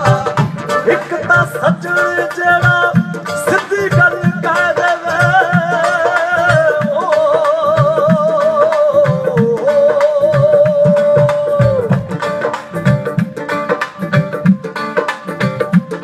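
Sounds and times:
man singing ornamented line: 0.0 - 12.8
band with steady drum beats: 0.0 - 16.0.

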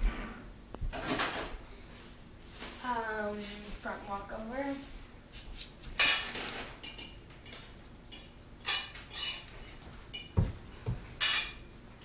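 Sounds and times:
light clinking: 6.8 - 11.6
dull thumps of landing on floor: 10.4 - 11.1.

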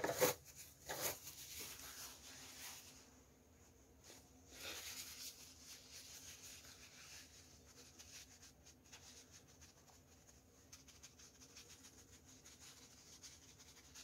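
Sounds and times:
tissue rubbing on face: 0.2 - 14.0.

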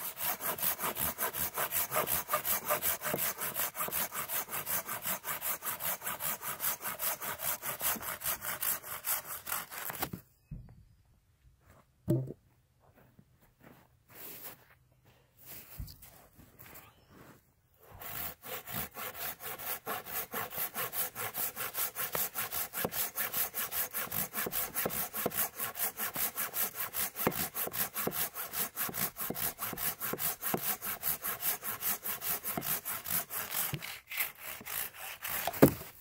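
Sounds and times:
pruning saw rasping through wood: 0.0 - 10.1, 17.8 - 36.0.

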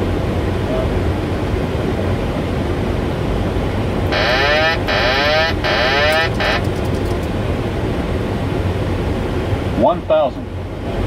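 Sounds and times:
airflow and engine noise: 0.0 - 11.0
electronic warble alert: 4.1 - 6.7.

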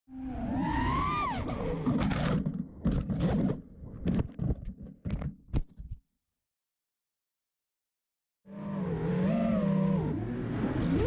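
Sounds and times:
drone motors whining: 8.5 - 11.0.

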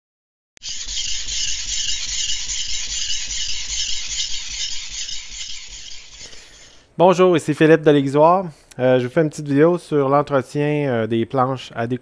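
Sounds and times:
knife scraping on sharpening stone: 0.6 - 6.8.

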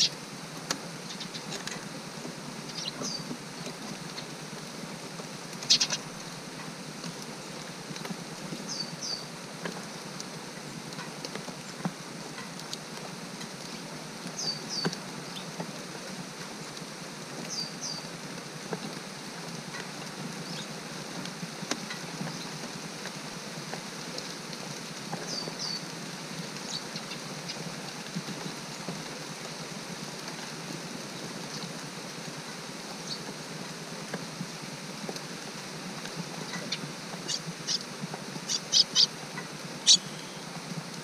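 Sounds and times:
steady rain falling: 0.0 - 41.0
raindrops ticking on surfaces: 0.1 - 41.0
small bird chirping: 1.1 - 1.5, 2.7 - 3.3, 5.6 - 6.1, 8.7 - 9.3, 14.4 - 15.5, 25.3 - 25.8, 36.4 - 39.2, 39.8 - 40.4.

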